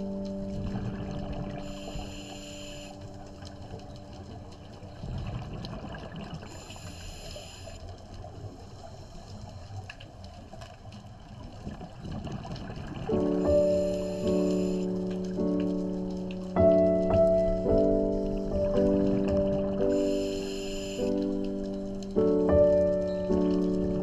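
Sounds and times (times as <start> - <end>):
crackle of exhaled bubbles: 0.0 - 24.0
hissing regulator inhalation: 19.9 - 21.1.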